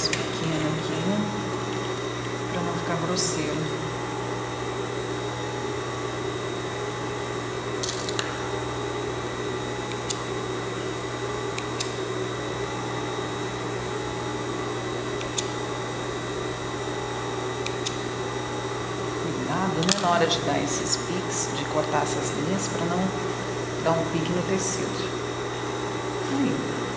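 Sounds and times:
sewing machine motor hum: 0:00.0 - 0:26.9
scissors snipping threads: 0:15.2 - 0:15.5.

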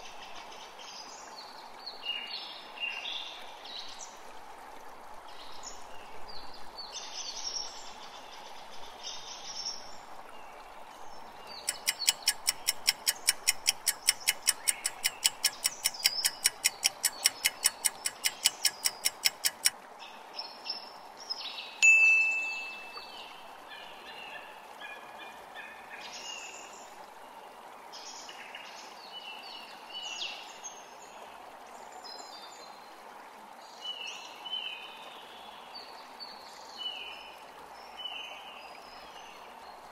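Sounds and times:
birds chirping: 0:11.5 - 0:19.7, 0:21.8 - 0:23.4
countdown timer ticking: 0:11.7 - 0:19.7
single chime: 0:21.8 - 0:23.0.

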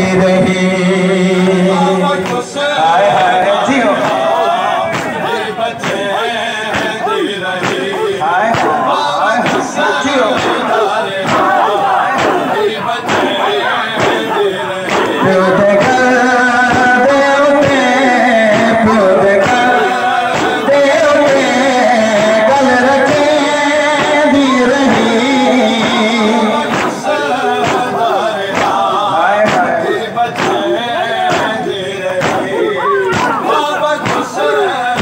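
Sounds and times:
man singing a lament over loudspeakers: 0:00.0 - 0:35.0
hands slapping on chests: 0:02.2 - 0:02.4, 0:04.0 - 0:16.0, 0:19.4 - 0:21.4, 0:25.7 - 0:35.0.

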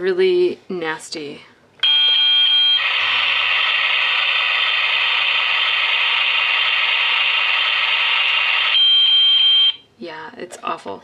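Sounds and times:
high steady beep: 0:01.8 - 0:03.4, 0:04.6 - 0:09.8
harsh electronic buzzing: 0:02.7 - 0:09.1.

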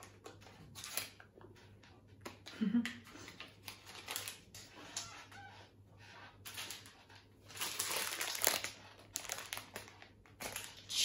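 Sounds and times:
plastic wrapping crinkling: 0:03.6 - 0:05.0, 0:06.5 - 0:11.0.

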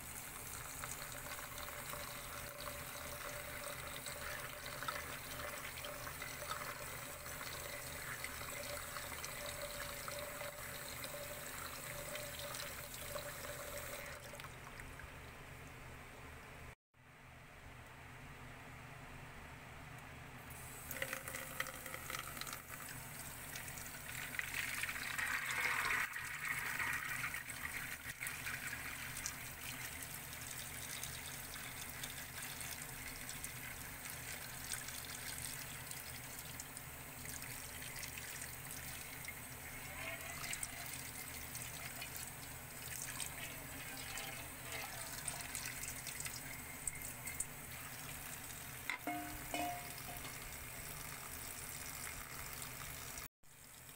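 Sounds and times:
tap water running and draining: 0:00.0 - 0:15.2, 0:20.5 - 0:53.9
water splashing into colander: 0:40.3 - 0:53.8.

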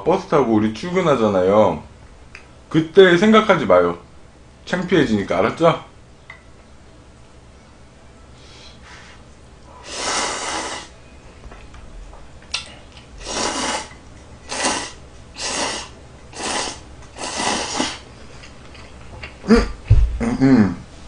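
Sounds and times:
man slurping noodles: 0:09.8 - 0:10.9, 0:13.2 - 0:18.0.

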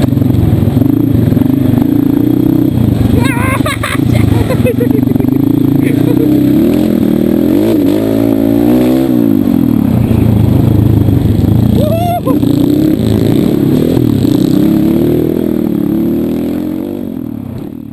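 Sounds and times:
motorcycle engine revving: 0:00.0 - 0:17.9
short high cry: 0:11.8 - 0:12.4.

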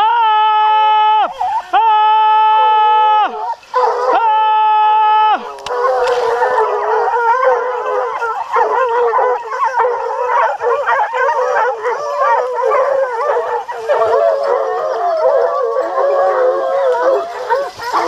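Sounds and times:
hounds baying and yelping: 0:01.3 - 0:01.8, 0:02.5 - 0:04.4, 0:05.4 - 0:18.0.

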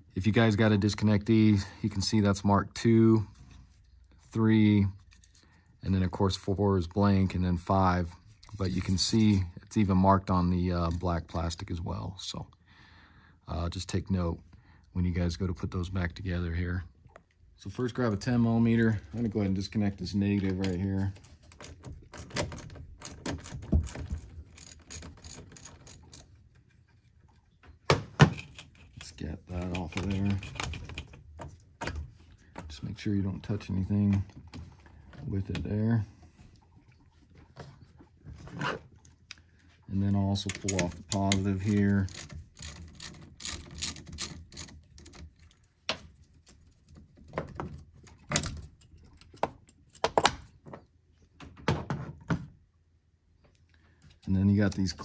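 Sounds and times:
metal terminals and plastic knocking: 0:20.3 - 0:26.7, 0:27.6 - 0:32.8, 0:40.4 - 0:51.7.

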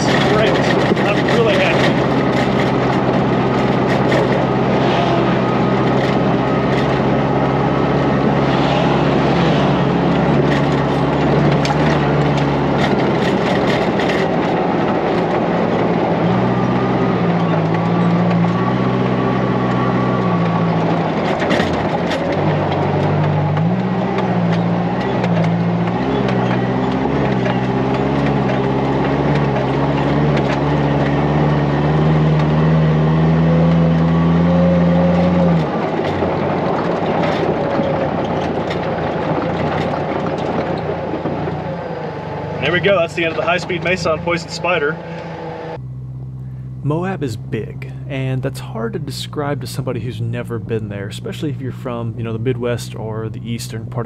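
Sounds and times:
chassis rattles and knocks: 0:00.0 - 0:44.2
engine running hard: 0:00.0 - 0:54.0
road and wind noise: 0:00.0 - 0:54.0.

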